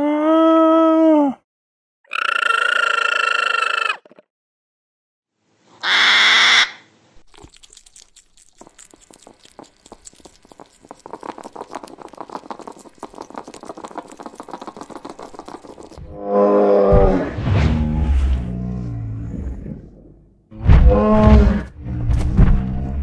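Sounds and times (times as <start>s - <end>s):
animal gnawing and crunching: 7.2s - 16.0s
roar-like animal call: 16.0s - 20.0s, 20.7s - 22.0s.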